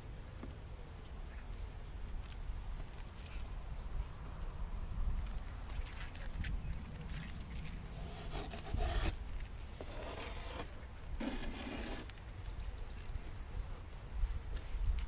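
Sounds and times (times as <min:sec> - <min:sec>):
low wind rumble on microphone: 0:01.4 - 0:11.3, 0:11.9 - 0:15.0
hive tool scraping wooden frames: 0:08.0 - 0:09.2, 0:09.8 - 0:12.1.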